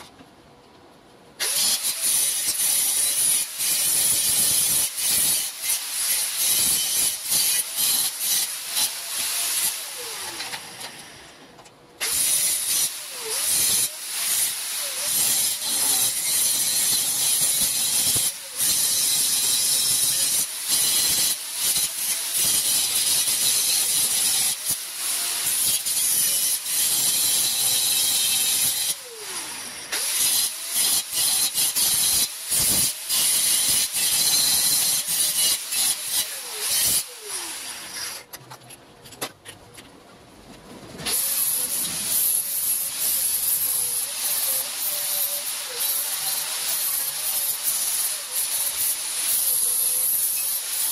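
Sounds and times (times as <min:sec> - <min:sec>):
angle grinder grinding steel: 0:12.0 - 0:38.3, 0:41.1 - 0:50.9.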